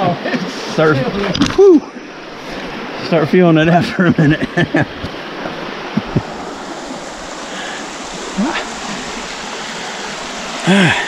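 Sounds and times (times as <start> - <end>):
rapids rushing over rocks: 0.0 - 11.0.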